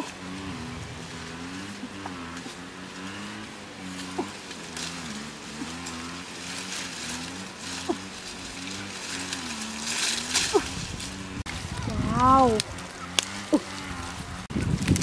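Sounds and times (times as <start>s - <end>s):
low motor-like drone: 0.0s - 14.6s
leaves and twigs rustling: 0.0s - 15.0s.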